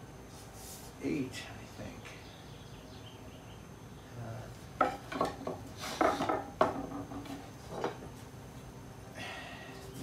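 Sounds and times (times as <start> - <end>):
wooden chair spindles knocking: 4.8 - 8.1.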